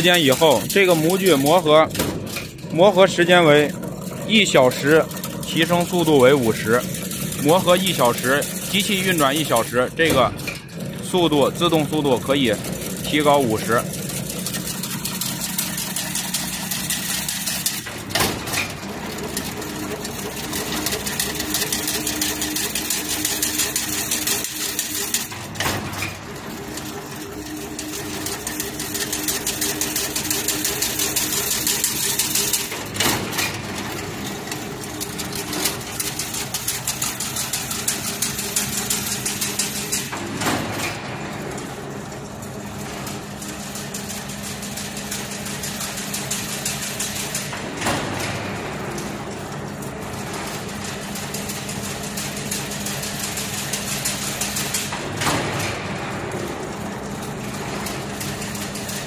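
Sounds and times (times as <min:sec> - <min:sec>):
loud machine knocks: 0:00.0 - 0:05.9, 0:16.2 - 0:19.0, 0:28.4 - 0:36.0, 0:40.0 - 0:41.4, 0:47.5 - 0:48.7, 0:54.9 - 0:56.3
low machine hum: 0:00.0 - 0:59.0
machine mechanical clatter: 0:00.0 - 0:59.0.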